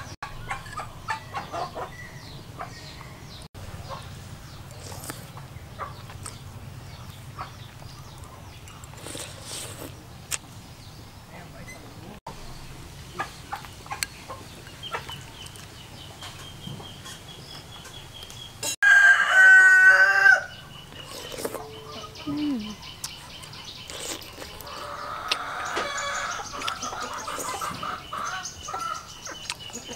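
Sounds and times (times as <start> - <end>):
rooster crowing: 18.8 - 20.6.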